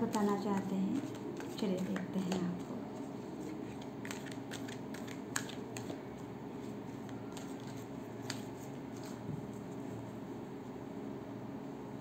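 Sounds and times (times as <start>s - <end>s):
low room hum: 0.0s - 12.0s
cards being shuffled: 0.1s - 6.3s, 7.0s - 9.3s.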